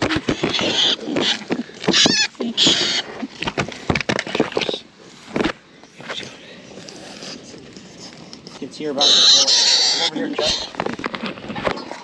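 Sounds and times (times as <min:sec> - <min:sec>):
dogs whining and yelping: 0:00.0 - 0:03.4, 0:09.0 - 0:10.8
scrabbling and scratching: 0:00.0 - 0:12.0.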